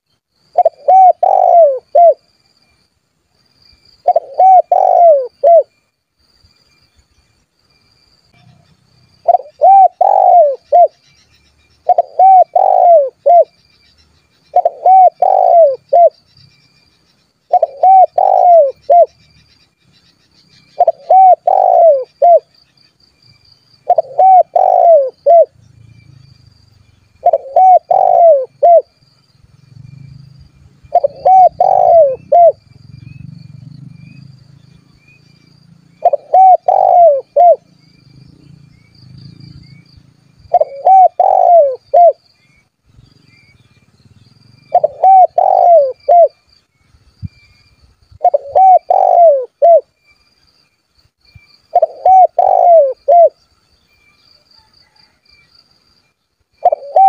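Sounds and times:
dove cooing: 0.5 - 2.2, 4.0 - 5.7, 9.2 - 11.0, 11.8 - 13.6, 14.5 - 16.2, 17.5 - 19.2, 20.8 - 22.5, 23.8 - 25.6, 27.2 - 29.0, 30.9 - 34.3, 35.9 - 38.0, 40.4 - 42.2, 44.7 - 46.4, 48.2 - 49.9, 51.7 - 53.4, 56.6 - 57.0.

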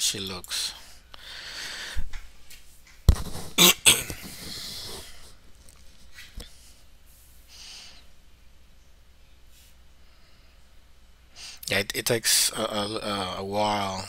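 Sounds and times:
breathing out: 1.2 - 2.1
man coughing: 3.6 - 4.4.

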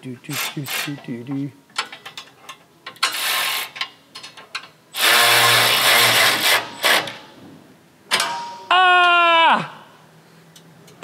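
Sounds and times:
power ratchet running in bursts: 5.0 - 7.1
man crying out in pain: 8.7 - 10.0.

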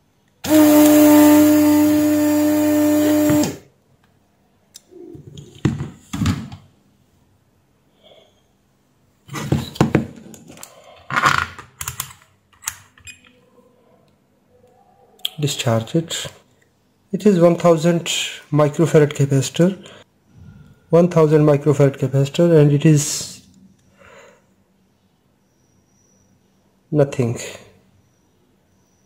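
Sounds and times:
desoldering pump humming: 0.0 - 3.8.

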